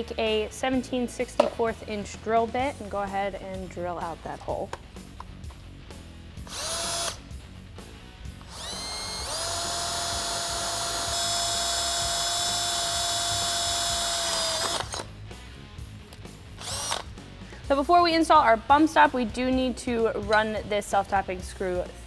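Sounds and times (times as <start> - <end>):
power drill drilling into metal: 6.5 - 7.2, 8.4 - 15.1, 16.6 - 17.1.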